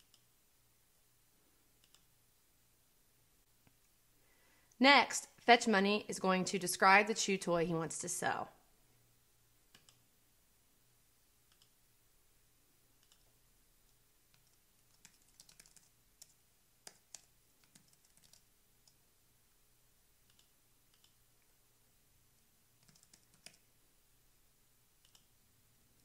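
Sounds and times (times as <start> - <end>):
mouse clicks: 0.0 - 0.3, 1.8 - 2.1, 9.7 - 10.0, 11.5 - 11.8, 13.0 - 13.3, 20.2 - 21.2, 25.0 - 25.3
faint low hum: 0.0 - 26.0
computer keyboard typing: 9.7 - 10.0, 13.0 - 13.3, 14.3 - 19.0, 20.2 - 21.2, 22.8 - 23.7.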